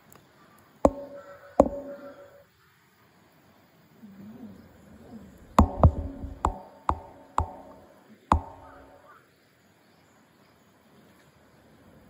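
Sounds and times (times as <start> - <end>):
sharp ringing knocks: 0.9 - 2.4, 5.6 - 9.0.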